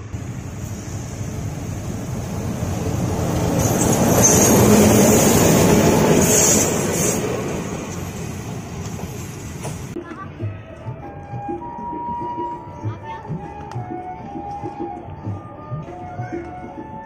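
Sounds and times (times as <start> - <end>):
freight train passing: 0.0 - 11.0.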